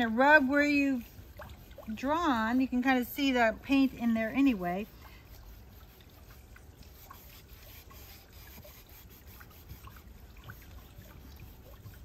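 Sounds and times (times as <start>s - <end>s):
fingertips rubbing paper: 7.1s - 10.0s.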